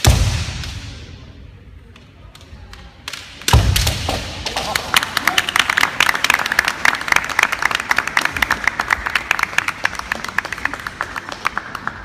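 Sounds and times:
spectators clapping: 4.4s - 12.0s.

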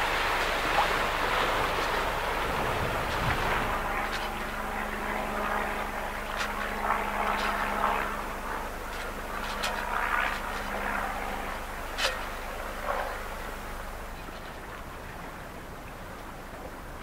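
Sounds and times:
low engine drone: 0.0s - 17.0s
water splashing along a hull: 0.0s - 17.0s.

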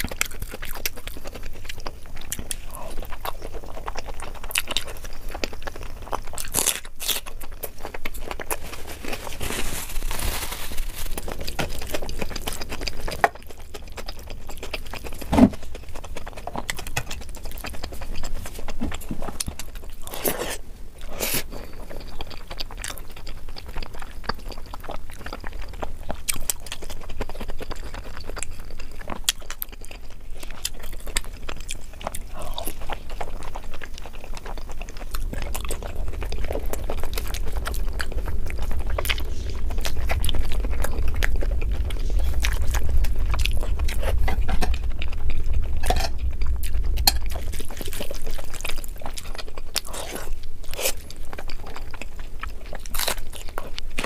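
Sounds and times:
close chewing and biting: 0.0s - 54.0s.

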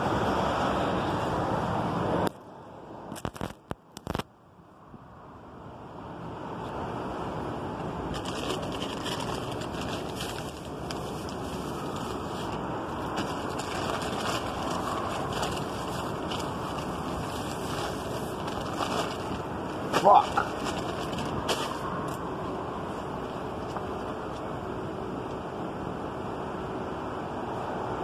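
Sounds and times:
phone handling rustles and clicks: 3.2s - 4.2s.

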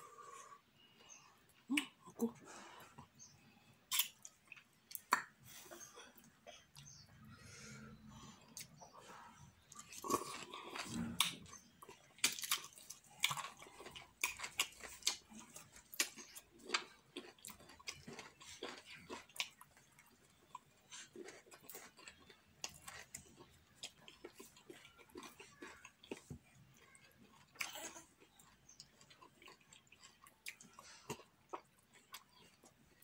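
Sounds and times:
wet chewing and lip-smacking: 9.6s - 33.0s.

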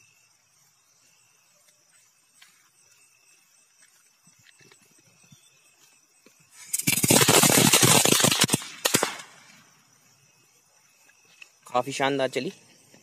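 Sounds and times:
firecracker crackling: 6.5s - 9.7s.

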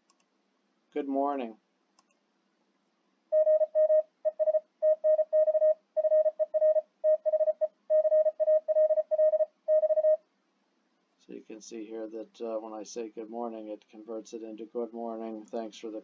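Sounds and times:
morse code beeps: 3.3s - 10.2s.

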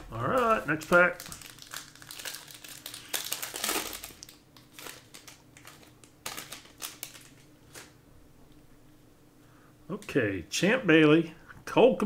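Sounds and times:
foil wrapper crinkling: 0.2s - 8.0s.

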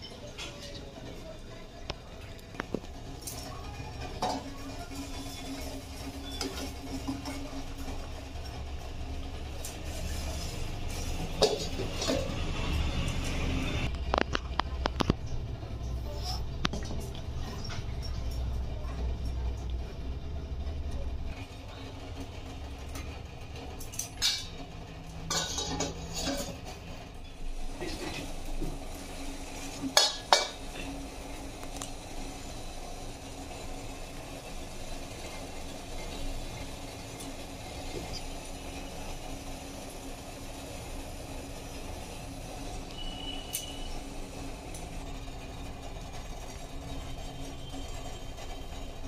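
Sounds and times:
steel cookware clinking and scraping: 9.6s - 12.5s, 23.8s - 28.4s, 29.6s - 30.9s.

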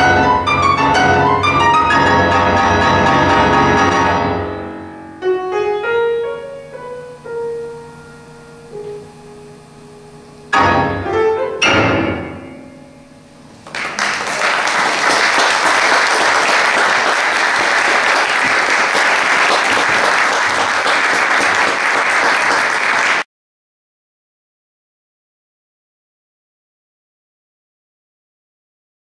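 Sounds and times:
grand piano chords: 0.0s - 19.5s
audience applause: 13.6s - 23.3s.

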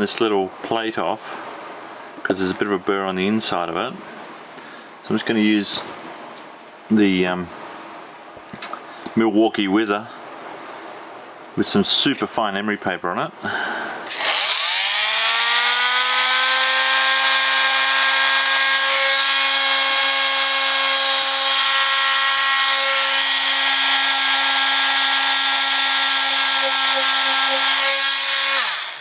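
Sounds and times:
oscillating multi-tool whine: 14.1s - 29.0s.

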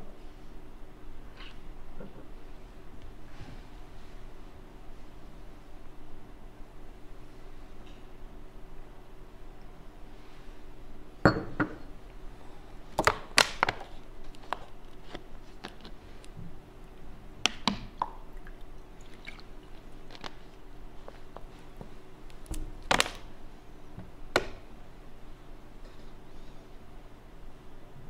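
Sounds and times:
steady low hum: 0.0s - 28.0s
glass and bottle clinking: 11.2s - 11.8s.

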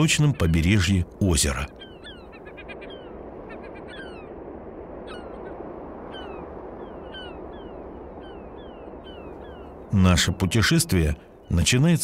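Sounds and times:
birds whistling falling notes: 1.8s - 9.9s.

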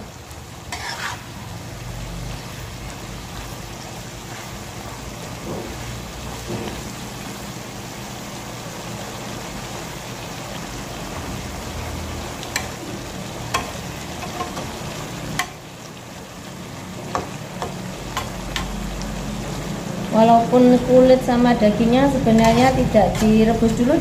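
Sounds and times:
stir-fry sizzling in wok: 0.0s - 24.0s
spatula clacking against pan: 12.5s - 12.8s, 13.5s - 15.6s, 17.1s - 18.8s.

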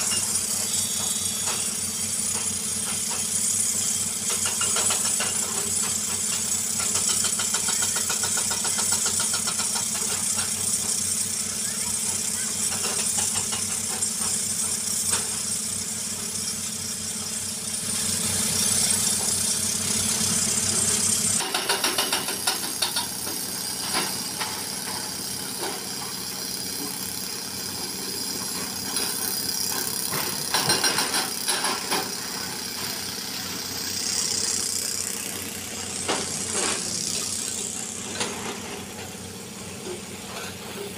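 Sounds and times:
excavator diesel engine running: 0.0s - 40.9s
knocks and clatter: 21.4s - 24.7s, 28.5s - 32.2s.

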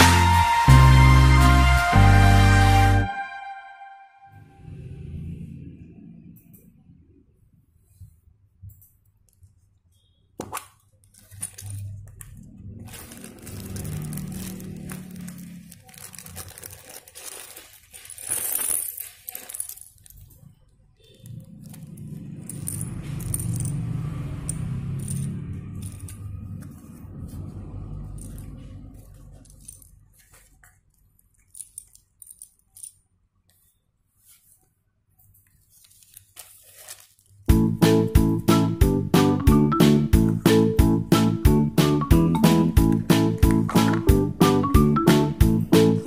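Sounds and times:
plastic bag crinkling: 11.0s - 20.5s, 35.4s - 37.5s
plastic pieces clattering on table: 11.0s - 20.5s, 29.2s - 33.0s.

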